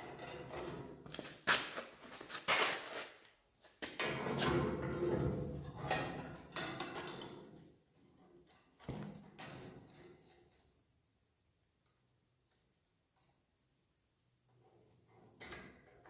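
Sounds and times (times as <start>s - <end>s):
scraping and rustling: 0.5s - 3.3s.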